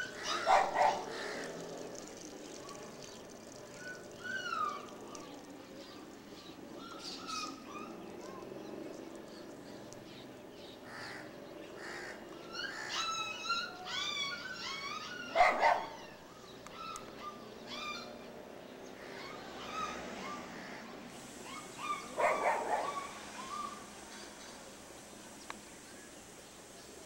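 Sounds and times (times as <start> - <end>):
dog barking: 0.3 - 1.1, 15.3 - 16.0, 21.8 - 23.2
high-pitched yelping: 12.8 - 18.0, 21.5 - 23.8.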